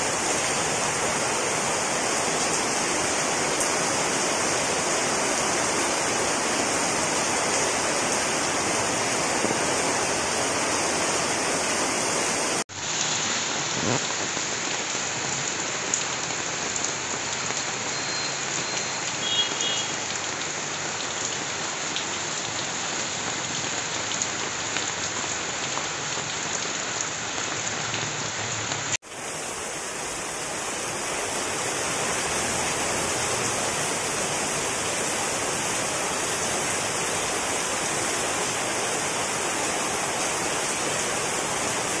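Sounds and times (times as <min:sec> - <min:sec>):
torrential rain pouring: 0:00.0 - 0:42.0.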